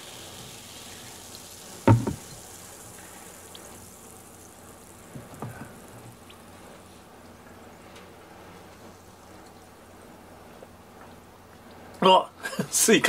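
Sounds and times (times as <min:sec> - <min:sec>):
soda fizzing: 0:00.0 - 0:10.8
small knock: 0:01.9 - 0:02.4.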